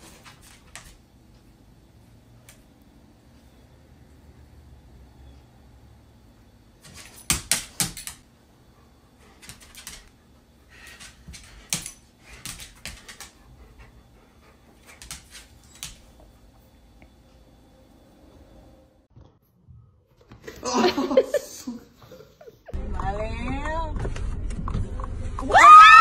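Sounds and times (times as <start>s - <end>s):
dog claws clicking on hard floor: 6.8s - 8.2s, 9.4s - 10.2s, 10.8s - 13.4s, 14.9s - 16.0s.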